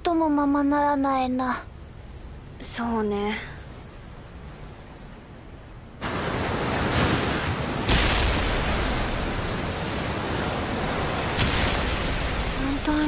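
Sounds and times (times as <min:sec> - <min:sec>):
waves crashing against hull: 0:06.0 - 0:13.0.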